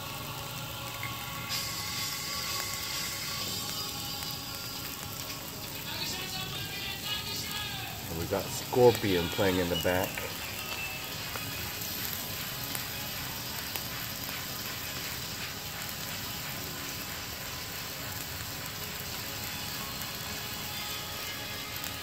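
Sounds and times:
faint music: 0:00.0 - 0:22.0
meat sizzling on a grill: 0:00.0 - 0:22.0.

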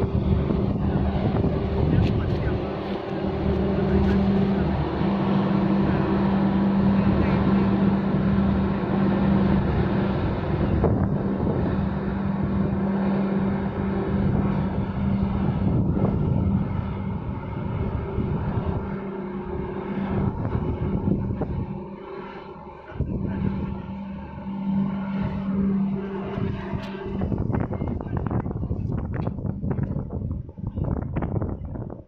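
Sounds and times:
constant rushing noise: 0:00.0 - 0:32.0
ship engine low hum: 0:00.0 - 0:32.0.

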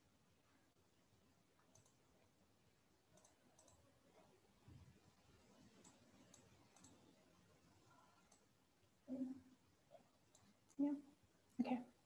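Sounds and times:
faint computer mouse clicks: 0:01.6 - 0:02.0, 0:03.1 - 0:03.8, 0:05.8 - 0:07.1, 0:10.3 - 0:10.8.

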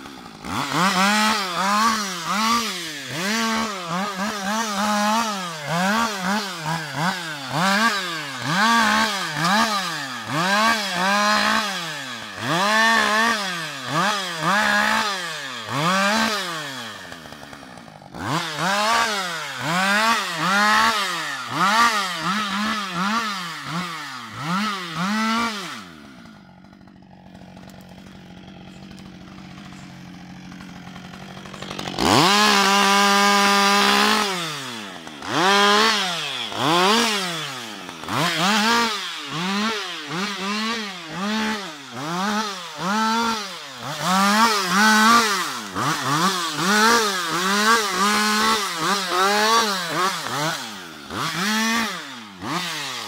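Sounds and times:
chainsaw revving and idling: 0:00.0 - 0:53.0.

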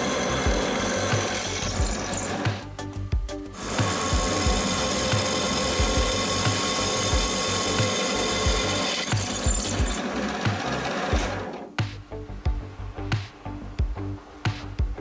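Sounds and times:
electric drill boring through metal: 0:00.0 - 0:02.7, 0:03.6 - 0:11.6.

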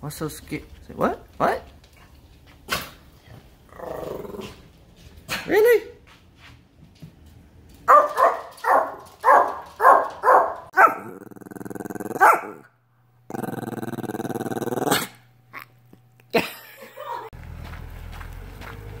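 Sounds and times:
dog growling: 0:03.6 - 0:04.8, 0:10.8 - 0:12.7, 0:13.3 - 0:15.8
small dog barking: 0:07.9 - 0:11.2, 0:12.1 - 0:12.7.

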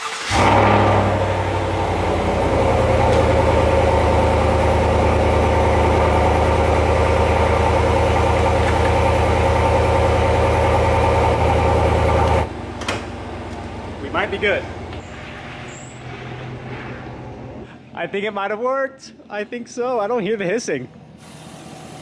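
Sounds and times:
engine idling: 0:00.0 - 0:15.2.

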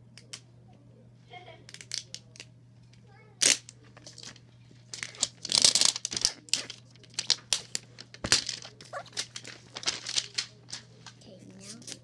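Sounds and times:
plastic wrapper tearing and crinkling: 0:03.4 - 0:12.0.

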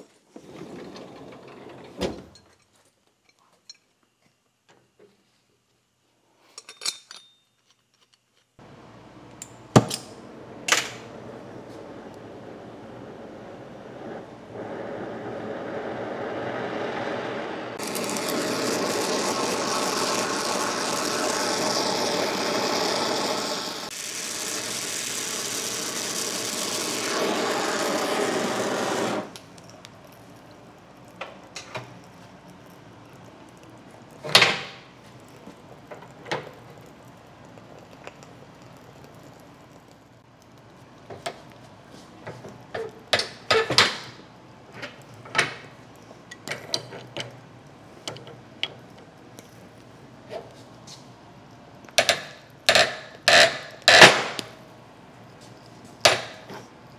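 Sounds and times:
torch flame hissing: 0:10.2 - 0:43.5.

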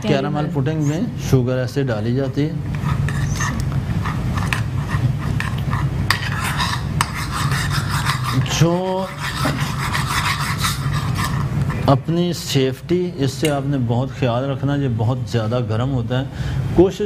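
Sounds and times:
metal spoon scraping pan: 0:02.7 - 0:11.9.

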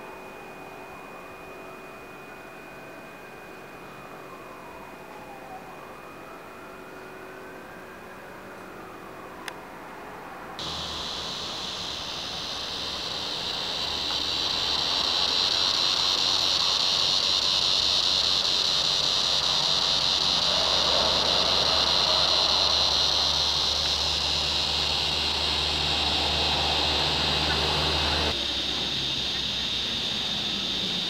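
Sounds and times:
insect chorus drone: 0:00.0 - 0:31.0.

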